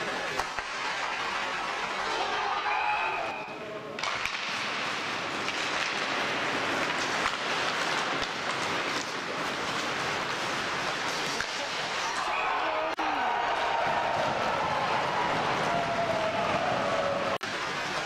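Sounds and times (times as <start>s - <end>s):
hockey sticks and puck clacking: 0.0s - 2.7s, 3.3s - 12.5s, 13.6s - 18.0s
arena crowd rushing noise: 11.5s - 18.0s.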